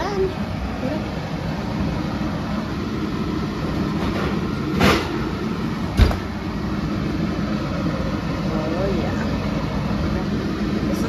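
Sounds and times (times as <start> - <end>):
steady low hum: 0.0 - 11.0
knocks on a gas stove: 6.0 - 6.3.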